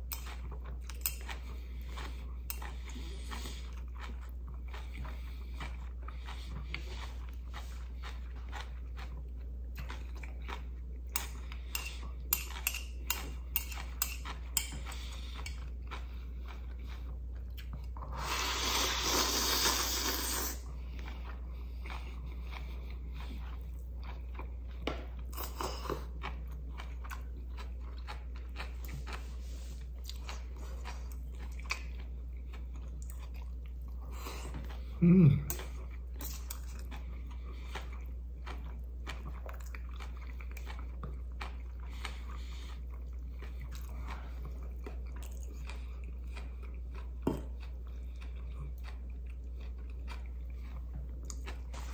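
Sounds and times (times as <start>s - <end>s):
person chewing noodles: 0.0s - 51.9s
slurping noodles: 18.1s - 20.6s.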